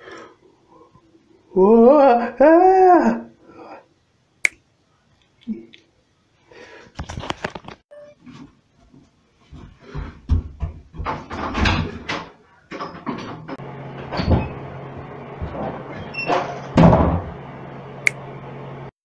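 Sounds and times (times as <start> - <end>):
rapid knocks and bumps: 9.4 - 12.3.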